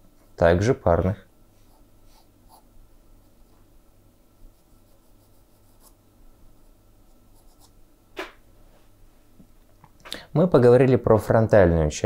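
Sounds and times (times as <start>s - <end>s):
pencil scratching on paper: 4.5s - 6.0s, 6.6s - 7.8s.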